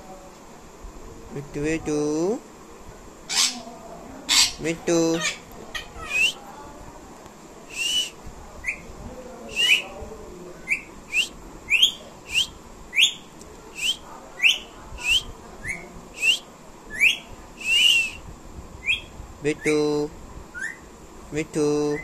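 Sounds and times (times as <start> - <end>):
parakeet short sharp calls: 3.3 - 3.7, 4.3 - 6.4.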